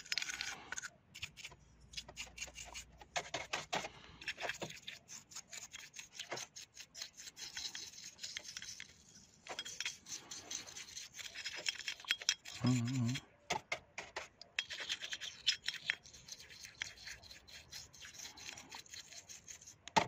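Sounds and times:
brush scrubbing metal: 0:01.2 - 0:13.2, 0:14.6 - 0:19.9.

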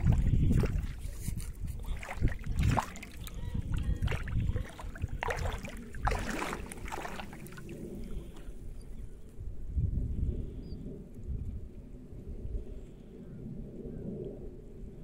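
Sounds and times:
water splashing and sloshing: 0:00.0 - 0:08.7.

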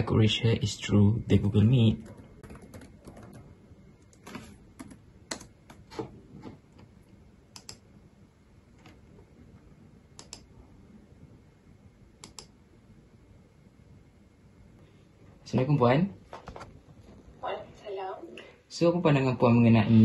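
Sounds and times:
laptop keyboard typing: 0:01.9 - 0:06.0, 0:07.6 - 0:07.8.

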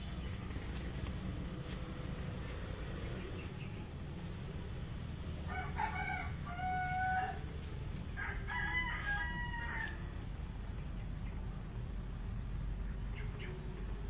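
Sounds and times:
low rumble: 0:00.0 - 0:08.6
rooster crowing: 0:05.4 - 0:07.5, 0:08.1 - 0:10.2.

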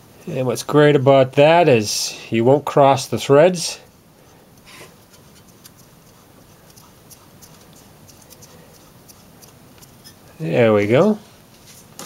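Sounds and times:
low steady hum: 0:00.0 - 0:12.0
spark plug scratching and ticking: 0:04.6 - 0:10.1.

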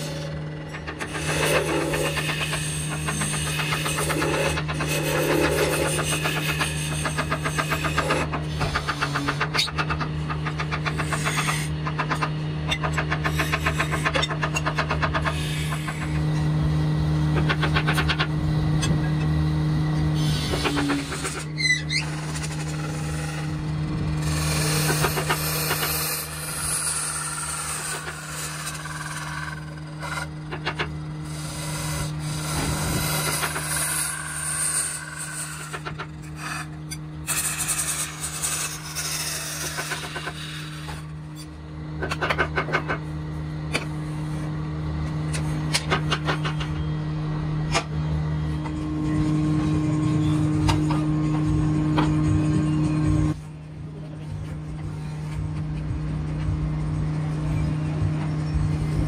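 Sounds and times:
chisel scraping spinning wood: 0:00.0 - 0:19.4, 0:20.2 - 0:43.0
wood lathe humming: 0:00.0 - 0:42.0.

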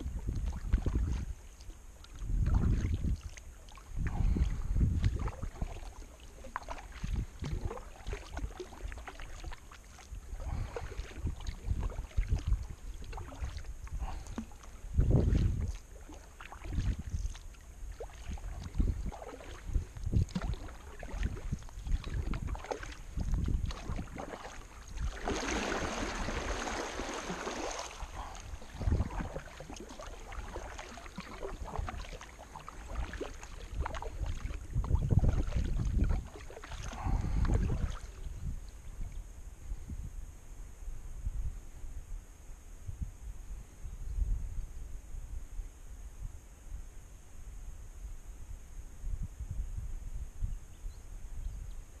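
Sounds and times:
wind buffeting microphone: 0:00.0 - 0:01.4, 0:02.1 - 0:06.1, 0:06.7 - 0:09.0, 0:10.2 - 0:15.9, 0:16.6 - 0:40.3
water pouring and splashing: 0:00.0 - 0:38.2
kayak paddle splashing in water: 0:00.0 - 0:38.3.

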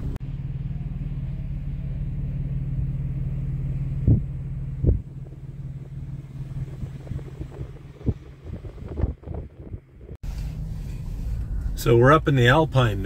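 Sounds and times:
vehicle engine rumbling: 0:00.0 - 0:13.0
sharp thumps: 0:03.9 - 0:10.2.

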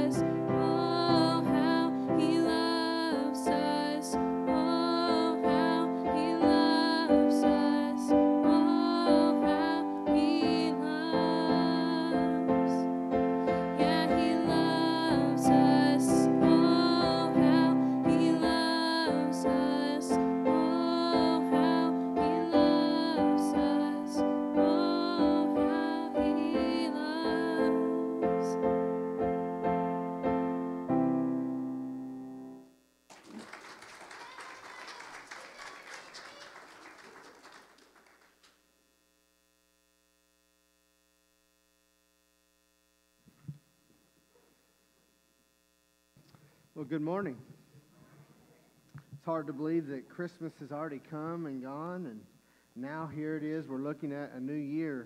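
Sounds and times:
solo piano slow chords: 0:00.0 - 0:32.8
light applause: 0:33.1 - 0:38.6.

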